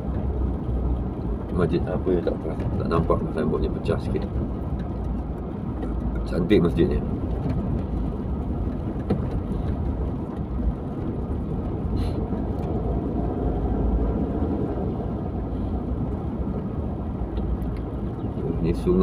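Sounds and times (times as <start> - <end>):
car driving along road: 0.0 - 19.0.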